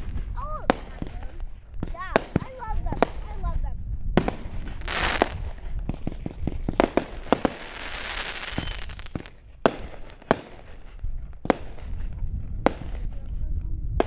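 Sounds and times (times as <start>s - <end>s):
fireworks bangs: 0.0s - 14.0s
sparks crackling hiss: 4.7s - 5.6s, 6.6s - 9.3s.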